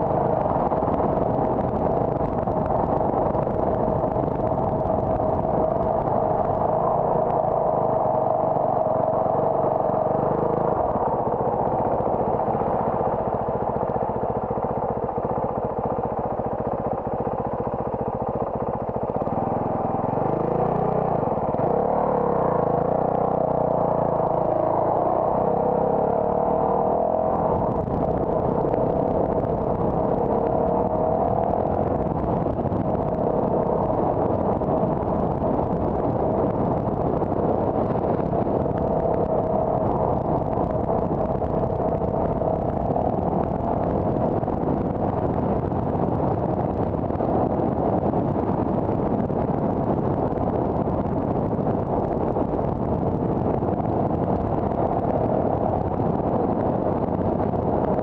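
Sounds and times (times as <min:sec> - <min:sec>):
car engine and road noise: 0:00.0 - 0:58.0.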